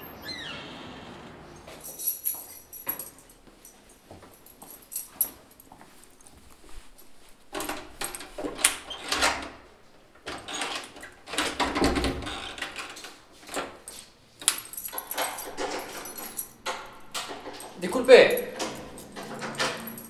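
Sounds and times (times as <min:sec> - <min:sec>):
keys jangling: 0:01.5 - 0:08.8, 0:13.5 - 0:20.0
key rattling in a door lock: 0:01.7 - 0:03.8, 0:04.4 - 0:06.2, 0:07.5 - 0:09.6, 0:10.3 - 0:20.0.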